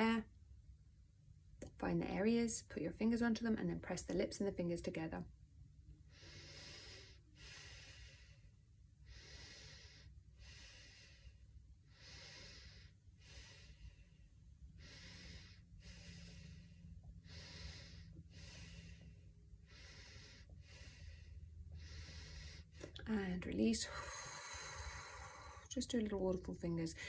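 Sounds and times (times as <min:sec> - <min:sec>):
breathing through the nose: 0:06.1 - 0:23.0.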